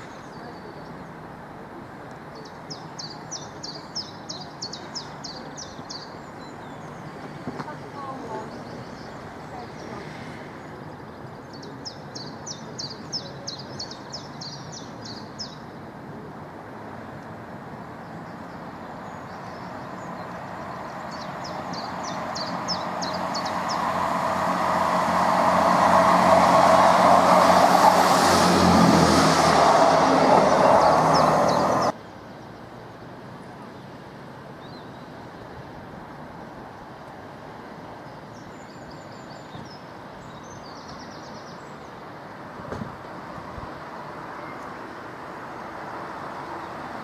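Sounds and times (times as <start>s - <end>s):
birds chirping: 2.3s - 15.8s, 18.0s - 32.5s
diesel train passing: 19.3s - 32.0s.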